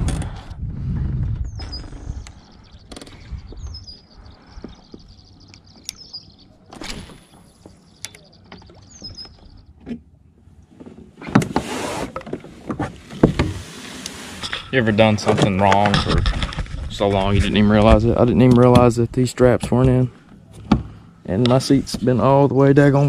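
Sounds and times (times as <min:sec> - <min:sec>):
songbird trilling: 0:01.5 - 0:09.7.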